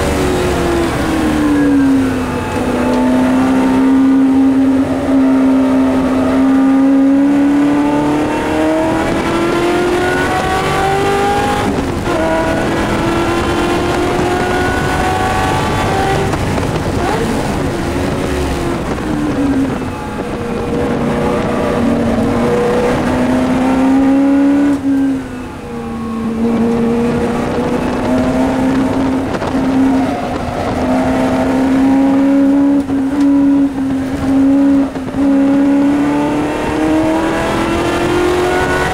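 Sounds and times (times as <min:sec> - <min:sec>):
racing car engine accelerating: 0:00.0 - 0:38.9.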